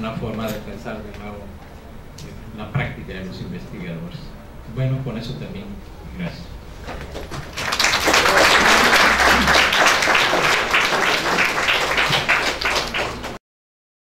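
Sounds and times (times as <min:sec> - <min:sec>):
audience applauding: 0:07.2 - 0:13.4.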